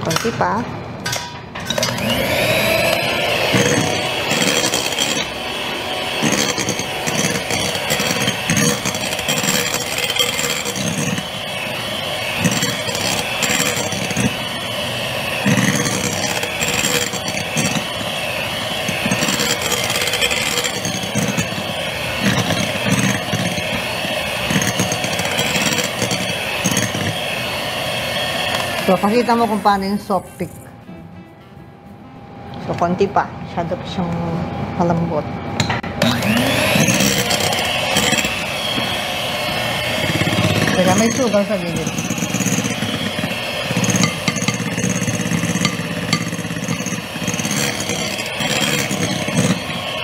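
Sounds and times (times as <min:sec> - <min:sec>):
electric hand mixer running: 0:01.7 - 0:30.7, 0:35.9 - 0:50.0
beaters knocking on glass bowl: 0:40.0 - 0:50.0.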